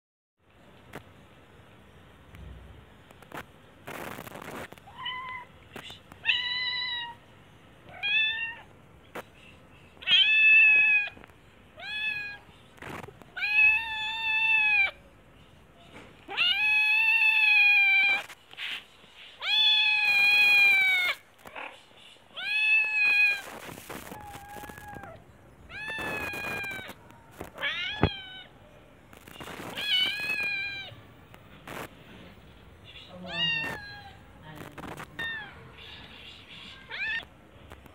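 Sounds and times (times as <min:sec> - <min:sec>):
kitten meowing: 0:10.0 - 0:11.2, 0:13.4 - 0:15.0, 0:16.3 - 0:18.3, 0:19.4 - 0:21.2, 0:22.4 - 0:28.5, 0:29.4 - 0:30.9, 0:33.2 - 0:36.0, 0:36.7 - 0:37.3.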